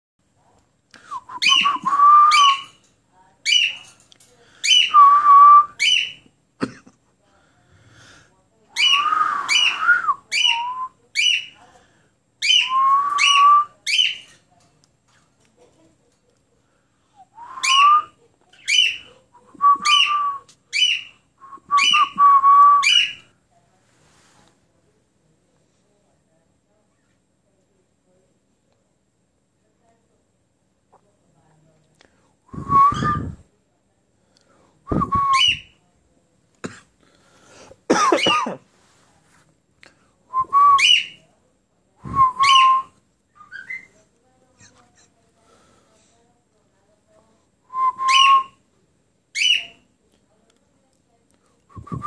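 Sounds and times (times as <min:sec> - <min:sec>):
cockatiel whistling: 0:42.1 - 0:43.9, 0:47.9 - 0:48.6.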